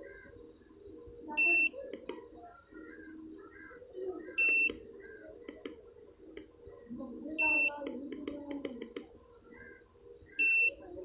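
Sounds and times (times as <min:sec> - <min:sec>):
low background murmur: 0:00.0 - 0:11.0
faint clicks: 0:01.9 - 0:02.3, 0:05.5 - 0:06.5, 0:07.8 - 0:09.2.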